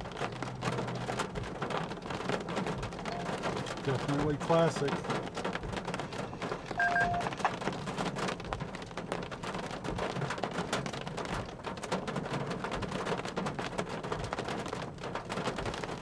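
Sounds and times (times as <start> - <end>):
rain drops crackling: 0.0 - 16.0
two-tone electronic beep: 3.0 - 3.4, 6.8 - 7.4.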